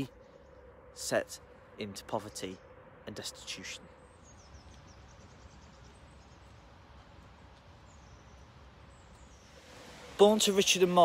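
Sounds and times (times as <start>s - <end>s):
faint bird chirps: 0.0s - 9.7s
low steady hiss: 0.0s - 11.0s.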